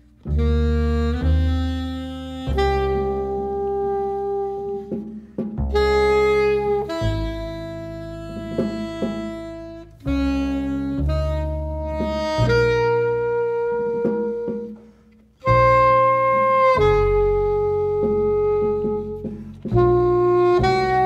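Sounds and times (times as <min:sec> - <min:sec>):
double bass: 0:00.0 - 0:21.0
saxophones and brass chords: 0:00.0 - 0:21.0
drum hits: 0:04.7 - 0:09.9.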